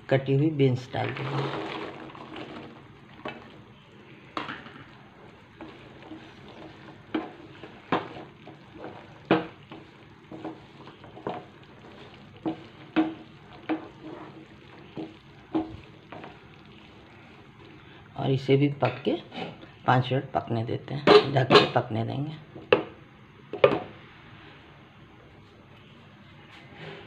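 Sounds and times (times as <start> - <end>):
faint bubbling: 1.0 - 18.4
spatula scraping a pan: 5.2 - 17.0, 19.2 - 19.7.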